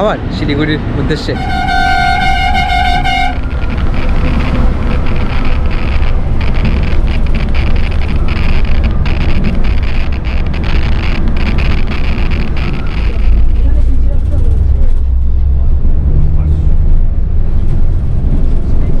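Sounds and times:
bus road rumble: 0:00.0 - 0:19.0
wind on microphone: 0:01.8 - 0:16.1.

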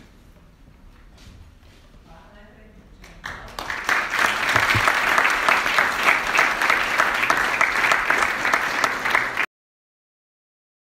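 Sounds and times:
audience applauding: 0:03.2 - 0:09.5.

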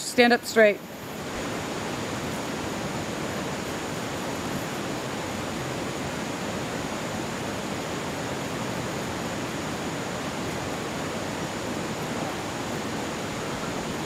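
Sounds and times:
steady rushing noise: 0:00.0 - 0:14.0
faint high-pitched tone: 0:12.1 - 0:14.0.

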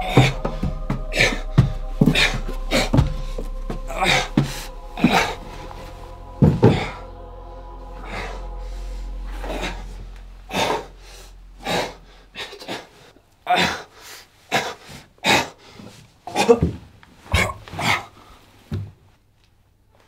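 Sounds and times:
low drone: 0:00.0 - 0:13.6.

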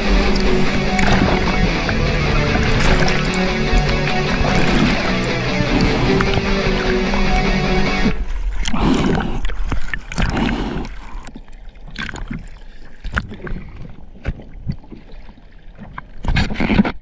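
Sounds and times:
sea water splashing: 0:00.0 - 0:17.0.

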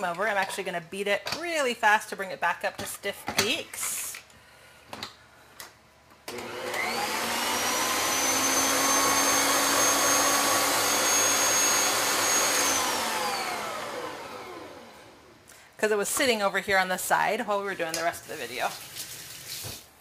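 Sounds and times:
electric mixer motor whine: 0:06.3 - 0:15.3.

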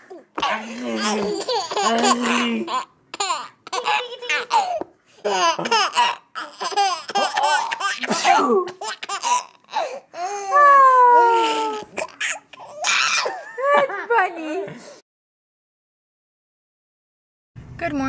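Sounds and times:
baby giggling: 0:00.1 - 0:10.5, 0:11.2 - 0:14.0
baby squealing: 0:00.9 - 0:13.5.

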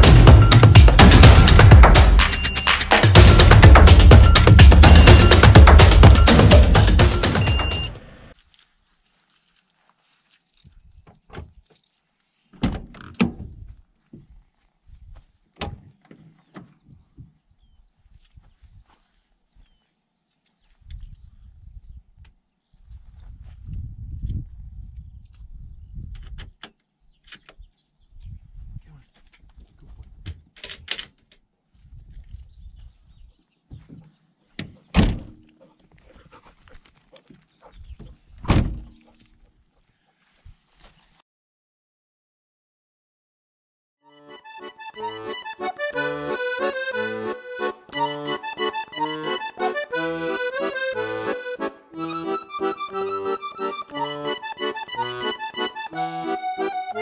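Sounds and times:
door knocks and rattles: 0:12.6 - 0:13.7, 0:38.0 - 0:39.0
van door latch metal clunks: 0:38.5 - 0:39.0.

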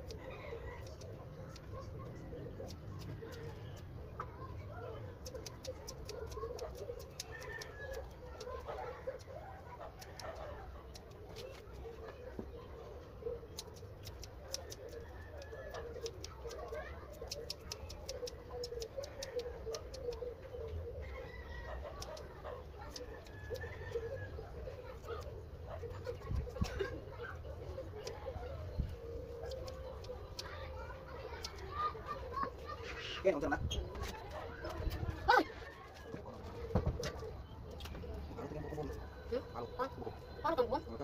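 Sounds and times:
birds clucking and calling: 0:00.0 - 0:41.0
scissors snipping dog fur: 0:00.8 - 0:03.9, 0:05.1 - 0:11.8, 0:13.4 - 0:20.4, 0:21.8 - 0:24.2, 0:27.9 - 0:32.1.

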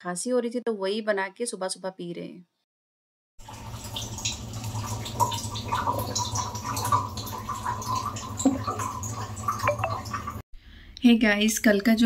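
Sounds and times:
small irregular drips: 0:03.4 - 0:10.4.

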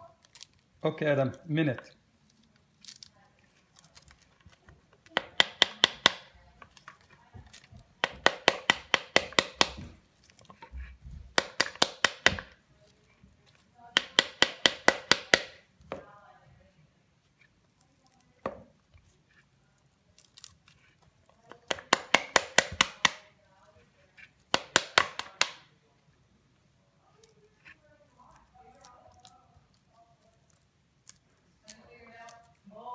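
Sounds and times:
spoon whacking pomegranate: 0:04.9 - 0:12.6, 0:13.5 - 0:16.0, 0:21.4 - 0:23.4, 0:24.3 - 0:25.7.

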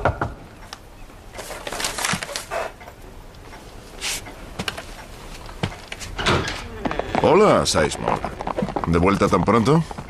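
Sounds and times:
newspaper rustling: 0:01.4 - 0:02.6
short hiss: 0:04.0 - 0:04.3.

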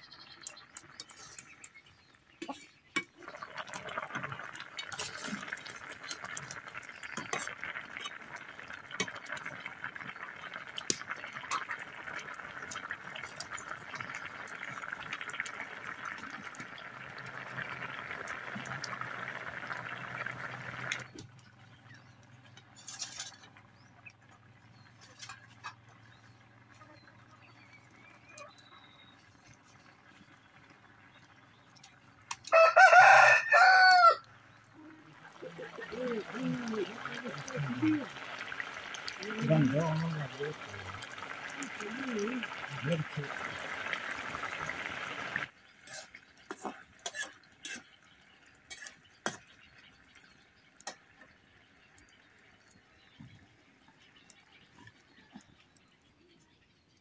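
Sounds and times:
curry bubbling and popping: 0:00.0 - 0:57.0
rooster crowing: 0:32.5 - 0:34.3.

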